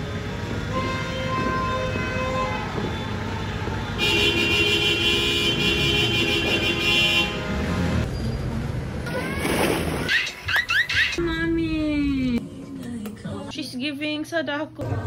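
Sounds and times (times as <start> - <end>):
horns tooting: 0.6 - 8.3.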